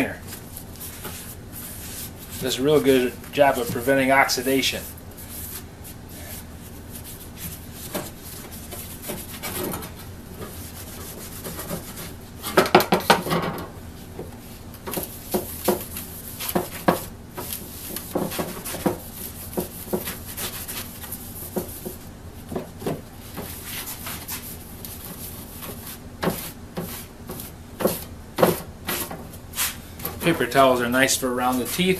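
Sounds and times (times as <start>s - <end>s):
rubbing and scraping on metal: 0.0s - 12.6s, 23.4s - 31.9s.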